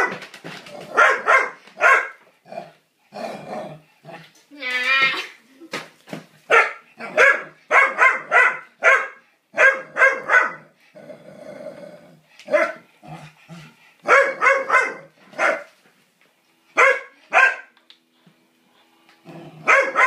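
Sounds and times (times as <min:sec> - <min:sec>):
dog barking: 0:01.0 - 0:02.2, 0:06.5 - 0:10.7, 0:12.5 - 0:12.8, 0:14.0 - 0:15.7, 0:16.8 - 0:17.7, 0:19.6 - 0:20.0.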